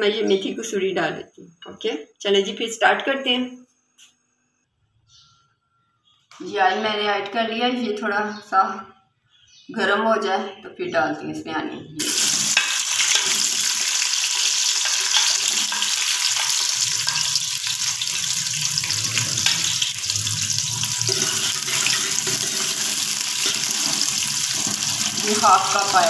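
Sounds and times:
onions sizzling in hot oil: 12.0 - 26.0.

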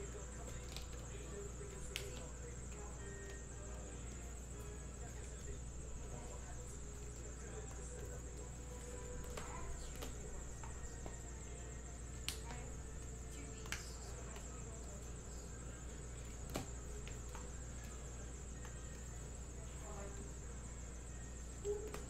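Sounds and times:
cards handled on table: 7.1 - 11.2.

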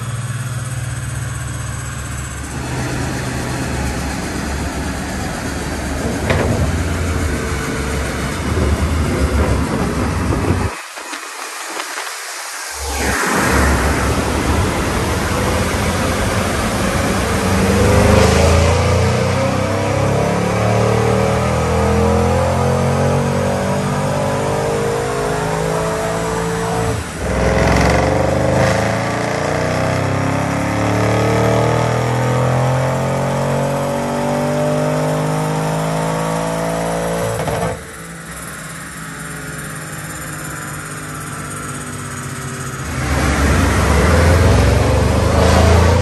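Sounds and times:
car engine revving on a dyno: 0.0 - 46.0.

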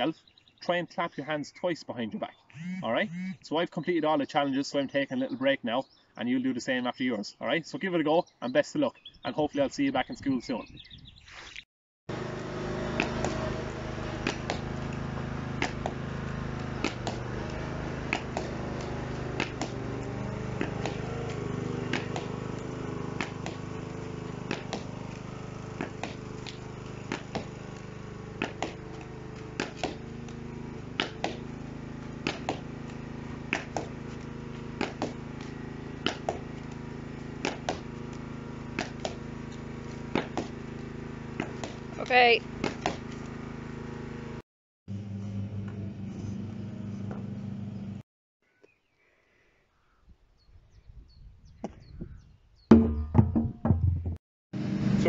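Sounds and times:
steady low hum: 12.1 - 48.0
hurley striking ball against wall: 12.6 - 43.2.

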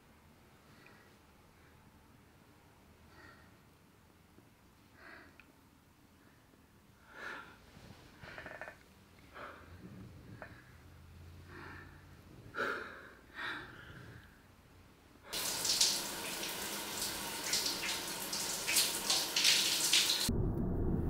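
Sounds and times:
faint breathing: 3.0 - 3.7, 6.2 - 14.6
shower water spraying: 15.4 - 20.3.

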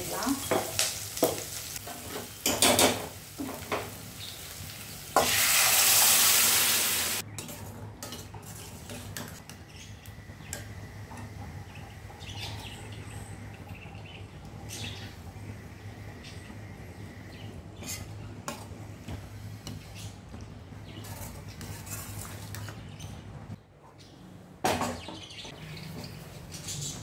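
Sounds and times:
loud sizzling hiss: 0.0 - 7.2
onions frying in oil: 0.0 - 7.3.

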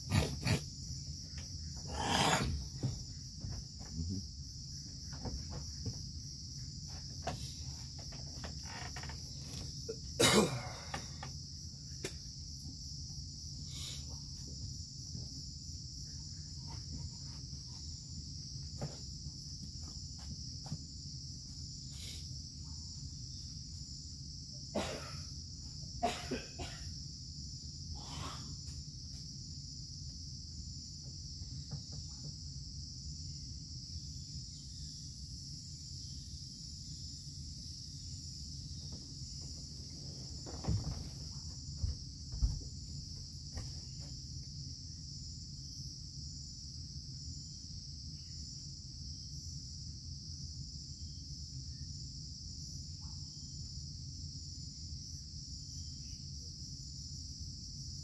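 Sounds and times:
insect chorus droning: 0.0 - 58.0
knocks and rustles: 2.4 - 4.1, 4.8 - 6.2, 6.8 - 9.8, 38.8 - 44.2.

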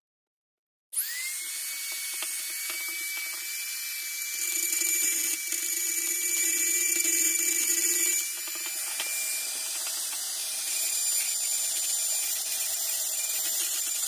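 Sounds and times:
rotary tool whine: 1.0 - 14.0
bit grinding on metal: 4.3 - 14.0.

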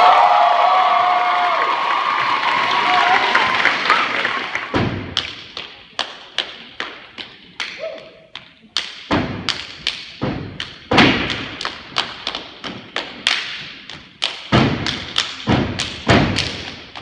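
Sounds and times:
clapping and body slapping: 2.8 - 17.0
stomping on stage floor: 4.7 - 5.3, 9.1 - 9.6, 14.5 - 16.8.

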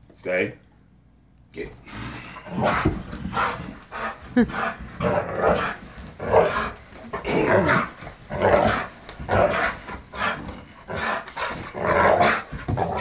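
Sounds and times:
dog growling and barking: 2.1 - 3.6, 4.6 - 13.0.

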